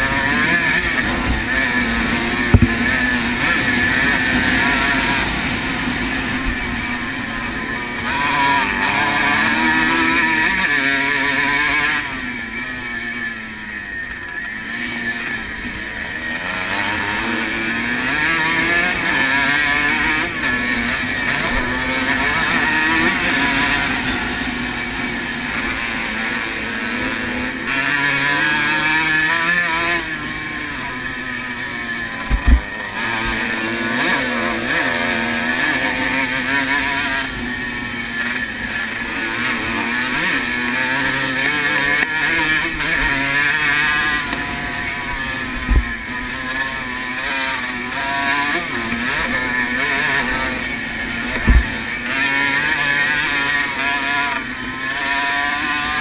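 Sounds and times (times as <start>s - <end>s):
two-stroke motorcycle engine revving: 0.0s - 56.0s
wind and track noise: 0.0s - 56.0s
low thumps: 2.5s - 3.0s, 51.3s - 51.7s.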